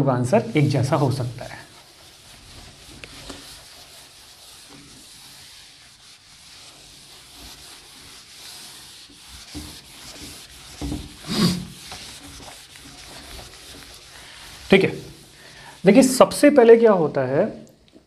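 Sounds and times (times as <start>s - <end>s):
rubbing and scratching: 0.3s - 16.7s.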